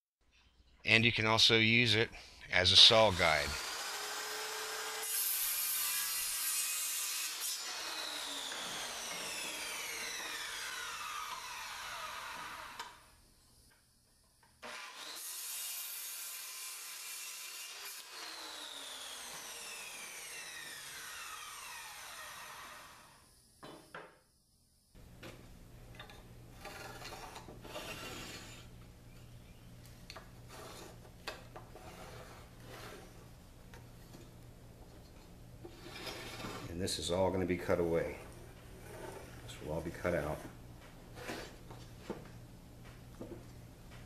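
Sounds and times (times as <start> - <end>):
circular saw cutting wood: 2.8 - 13.1, 14.6 - 23.2, 26.5 - 28.8, 31.7 - 33.3, 35.6 - 40.6
pencil scratching on lumber: 26.6 - 28.7, 30.5 - 33.3, 38.4 - 39.5.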